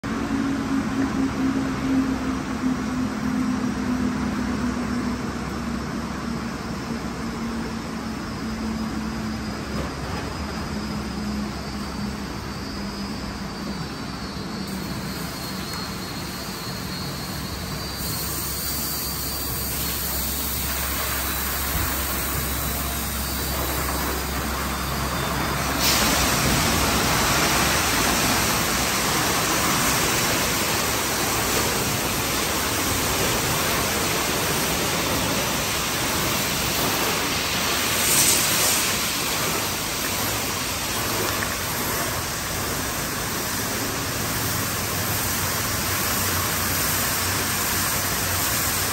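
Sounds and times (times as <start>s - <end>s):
low machinery hum: 0.0s - 48.9s
water spray jets hissing: 14.7s - 48.9s.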